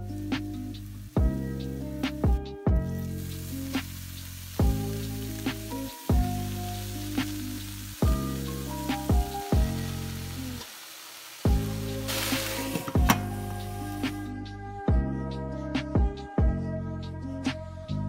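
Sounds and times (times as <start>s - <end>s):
greens sizzling in hot oil: 0.0s - 14.3s
background music: 0.0s - 18.0s.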